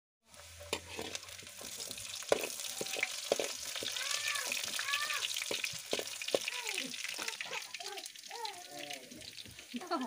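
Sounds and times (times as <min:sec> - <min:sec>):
onions sizzling in oil: 0:00.2 - 0:10.0
ladle scraping wok: 0:00.3 - 0:06.5.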